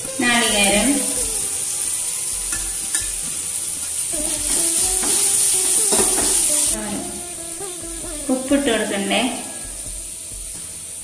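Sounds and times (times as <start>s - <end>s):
oil sizzling in a pan: 0.0s - 11.0s
spoon scraping a pan: 1.8s - 6.8s.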